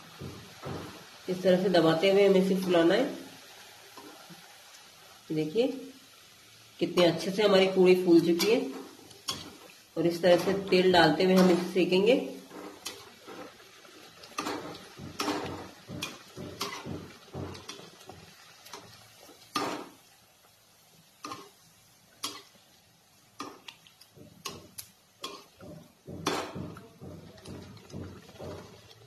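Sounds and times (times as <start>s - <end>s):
oil sizzling: 0.0s - 29.0s
metal spoon scraping a pan: 8.3s - 13.6s, 14.3s - 17.9s, 24.4s - 26.8s.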